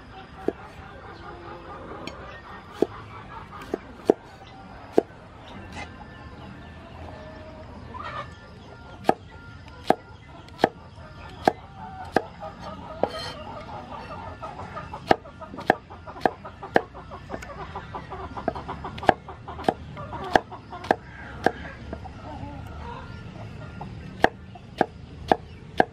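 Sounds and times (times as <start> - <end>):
cleaver chopping on wooden board: 3.6 - 4.2, 4.9 - 5.1, 9.8 - 10.0, 10.6 - 12.3, 15.0 - 17.4, 18.5 - 21.7, 24.2 - 25.9.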